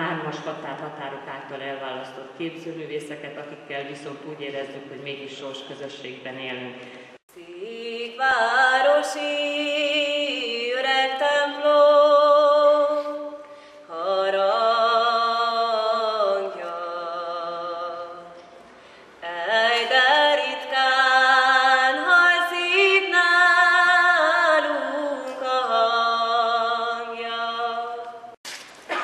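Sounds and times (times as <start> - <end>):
woman singing unaccompanied: 7.3 - 18.4, 19.2 - 28.4.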